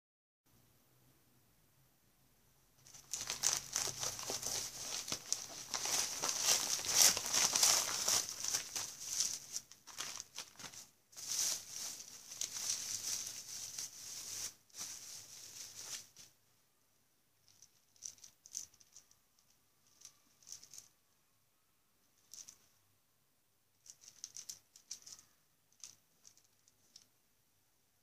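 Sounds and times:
plastic bag and bubble wrap crinkling: 2.8s - 16.3s.

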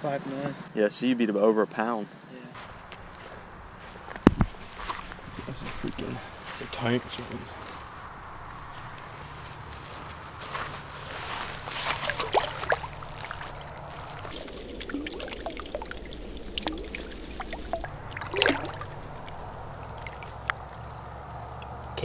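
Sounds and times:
soft footsteps on grass: 2.6s - 14.4s
water splashing and dripping: 11.0s - 22.0s
fish thrashing splashes: 11.5s - 21.8s
low steady rumble: 12.8s - 22.0s.

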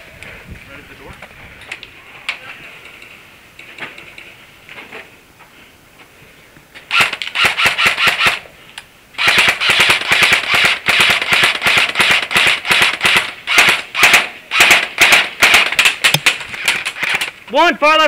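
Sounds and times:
airsoft rifle firing bursts: 6.9s - 8.4s, 9.2s - 16.4s.

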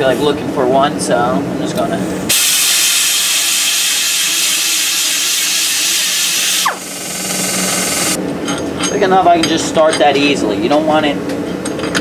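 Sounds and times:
pneumatic tool whining: 2.3s - 8.2s.

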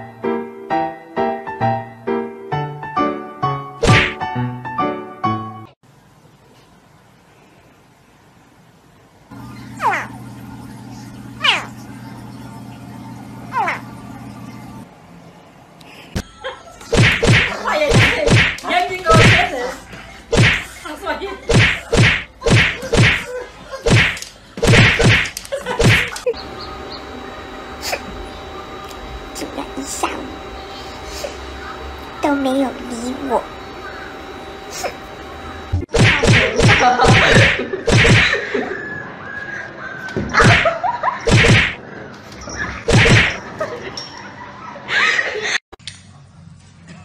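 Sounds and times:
loud whacks of paw swats: 3.8s - 4.2s, 16.9s - 19.4s, 20.3s - 20.7s, 21.5s - 26.2s, 35.9s - 38.3s, 40.4s - 40.7s, 41.3s - 41.8s, 42.9s - 43.4s.

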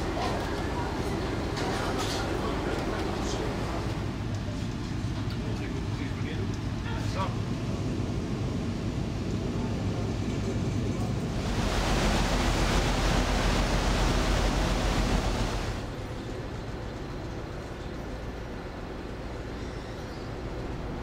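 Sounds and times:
ferry engine hum: 0.0s - 21.0s
rush of wind and sea: 5.8s - 16.6s.

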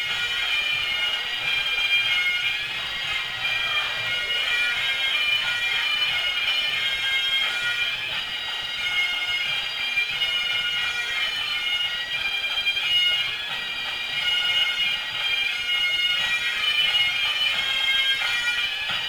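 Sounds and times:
bagpipe chanter melody: 0.0s - 19.0s
bagpipe drones: 0.0s - 19.0s.

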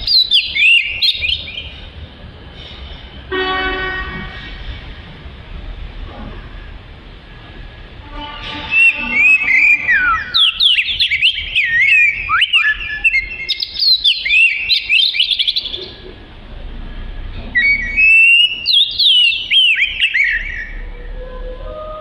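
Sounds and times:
bird singing whistles and chirps: 0.0s - 1.8s, 8.6s - 16.0s, 17.6s - 20.9s.

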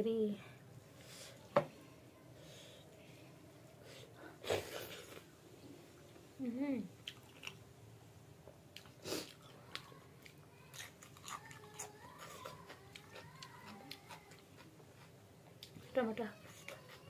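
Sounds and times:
person chewing: 7.0s - 7.6s, 8.7s - 15.8s.

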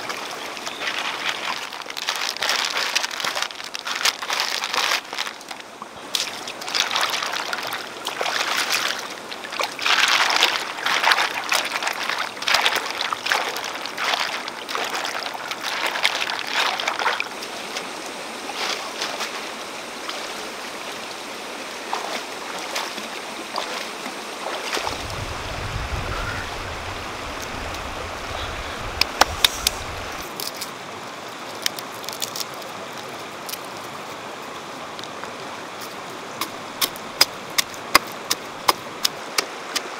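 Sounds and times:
rocky stream running: 0.0s - 39.9s
mussels sloshing in a basket: 0.1s - 20.4s, 21.9s - 30.8s.

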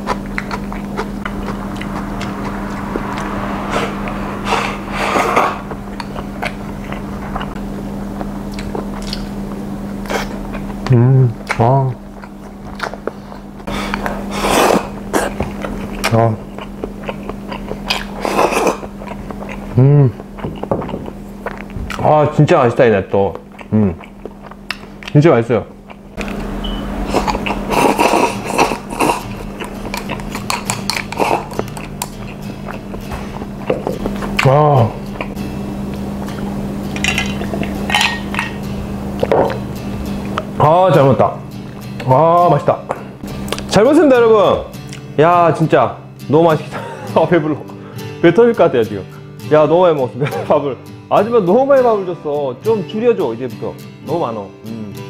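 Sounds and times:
person chewing: 0.0s - 2.2s, 5.1s - 22.0s, 23.3s - 25.2s, 25.8s - 38.4s, 39.1s - 40.5s, 42.9s - 43.7s, 44.8s - 45.1s
steady low hum: 0.0s - 49.5s.

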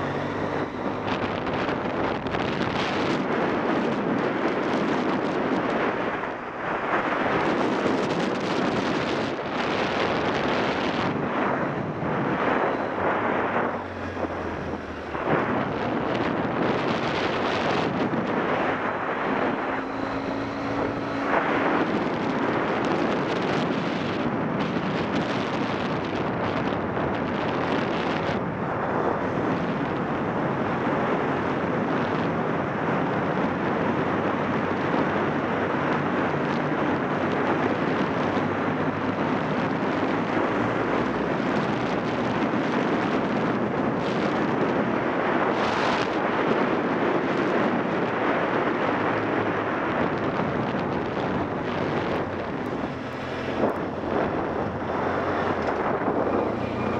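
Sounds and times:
wind buffeting microphone: 0.0s - 56.9s
motorcycle engine running: 19.2s - 24.1s.

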